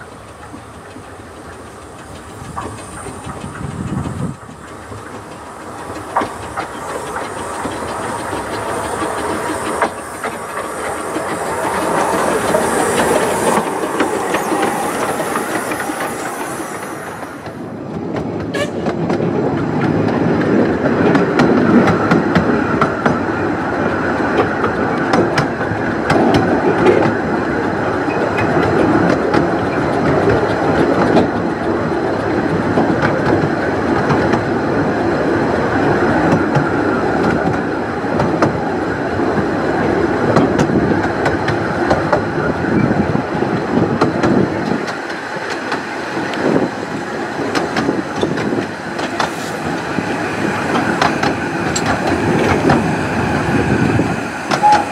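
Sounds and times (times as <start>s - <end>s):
steam hissing from locomotive: 0.0s - 17.8s, 35.8s - 54.9s
coach wheels clicking over rail joints: 0.0s - 54.9s.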